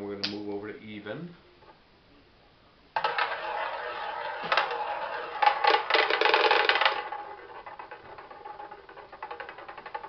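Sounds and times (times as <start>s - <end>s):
roulette ball rattling: 3.0s - 10.0s.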